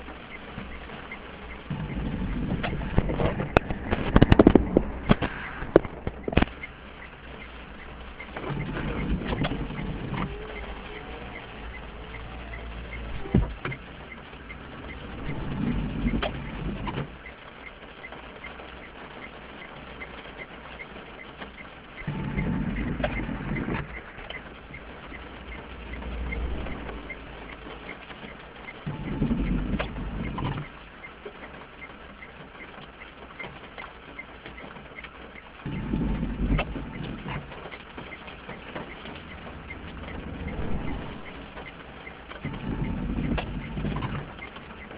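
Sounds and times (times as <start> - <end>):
faint regular tick: 0.0 - 44.9
rain pattering on car: 0.0 - 44.9
windscreen wiper sweeping: 0.0 - 44.9
low rumble: 0.7 - 17.3, 22.0 - 30.6, 35.6 - 44.9.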